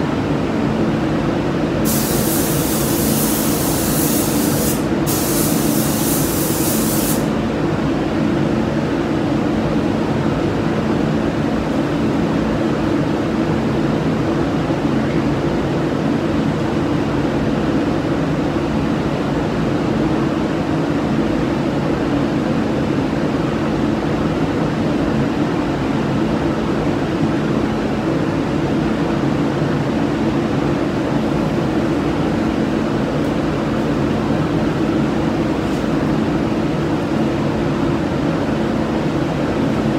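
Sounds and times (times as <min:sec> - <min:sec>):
extraction fans droning: 0:00.0 - 0:39.9
spray gun hissing: 0:01.8 - 0:07.3.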